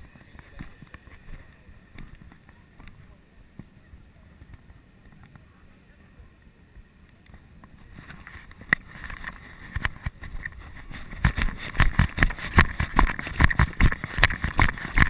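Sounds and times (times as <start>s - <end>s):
camera jostling: 7.9s - 15.0s.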